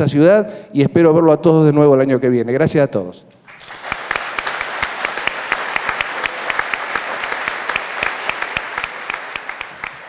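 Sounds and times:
audience applauding: 3.5 - 10.0.

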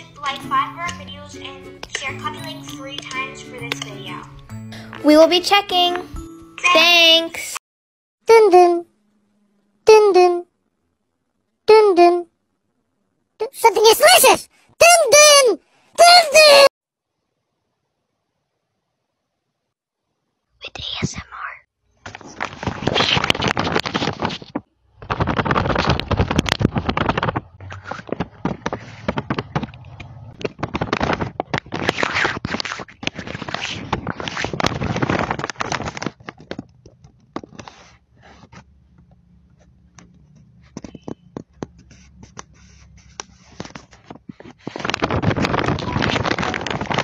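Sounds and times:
paper crinkling: 22.0 - 38.7, 41.8 - 47.0
fingers scratching on paper: 37.4 - 38.7.

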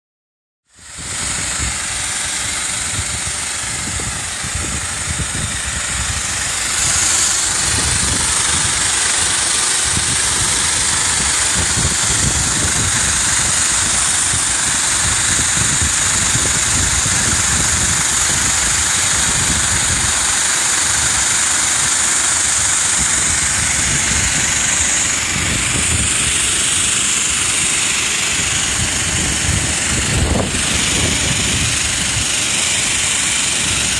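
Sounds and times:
water jet spraying: 0.8 - 33.9
low rumble: 22.8 - 33.9.

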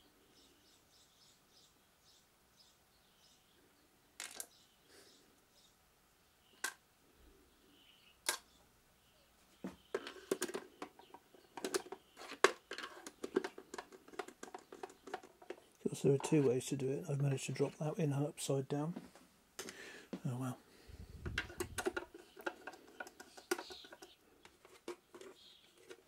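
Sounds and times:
hard plastic clicks and knocks: 21.2 - 24.1.

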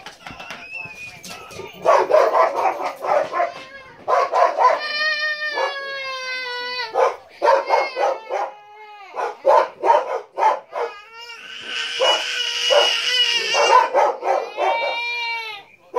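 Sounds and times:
dog howling: 1.3 - 10.0, 10.7 - 15.4
dog yipping barks: 1.8 - 4.9, 5.5 - 5.9, 6.9 - 8.6, 9.2 - 11.0, 12.0 - 15.1.

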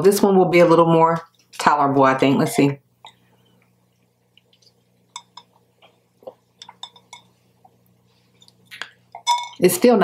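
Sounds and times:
glass clicks and clinks: 9.2 - 9.6.

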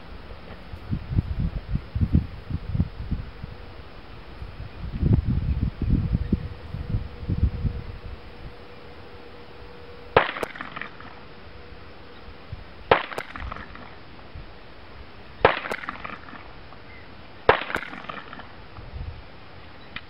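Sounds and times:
pistol shots with echo: 8.5 - 11.2, 12.8 - 14.0, 15.4 - 16.4, 17.5 - 18.5.

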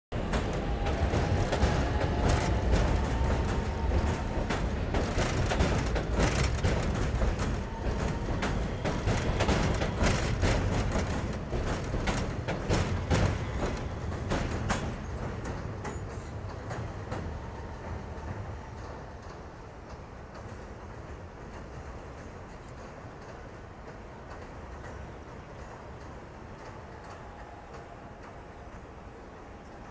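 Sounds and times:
train wheel-on-rail rumble: 0.1 - 29.9
clattering over rail joints: 0.2 - 17.3.

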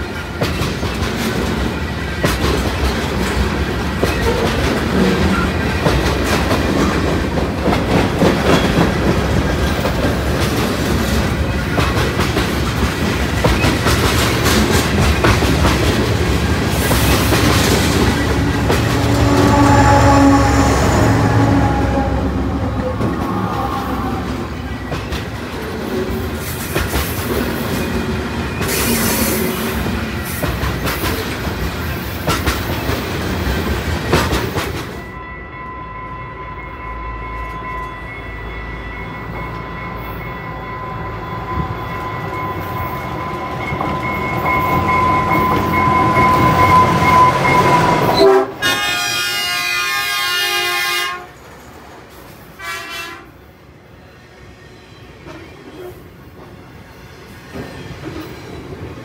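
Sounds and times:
train wheels clattering: 0.0 - 35.0
steady high-pitched tone: 16.7 - 25.6
train horn: 17.4 - 25.2, 45.2 - 51.4, 52.6 - 53.5.

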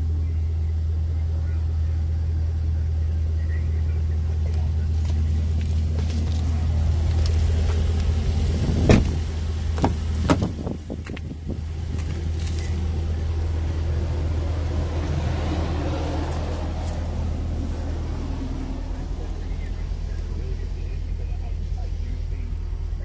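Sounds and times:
car engine idling: 0.0 - 23.0
handling knocks: 8.7 - 12.8.

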